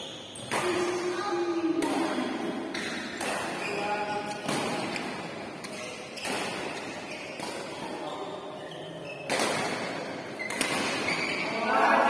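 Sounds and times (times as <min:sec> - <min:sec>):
sharp hits echoing in a hall: 0:00.0 - 0:08.6, 0:09.2 - 0:12.0.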